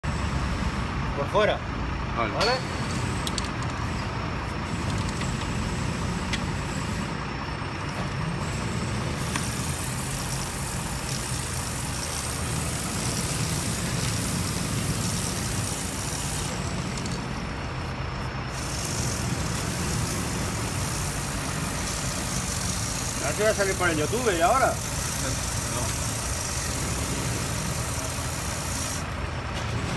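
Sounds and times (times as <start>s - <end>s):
aerosol spray hissing: 9.1s - 16.8s, 18.5s - 29.1s.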